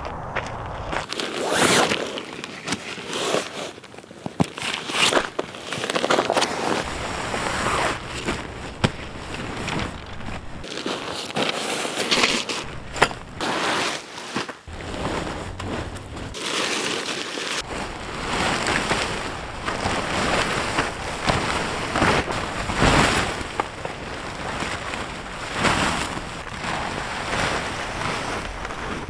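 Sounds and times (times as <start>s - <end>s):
gusty wind buffeting microphone: 0.0s - 1.1s, 6.8s - 10.7s, 12.6s - 13.4s, 14.7s - 16.4s, 17.6s - 29.0s.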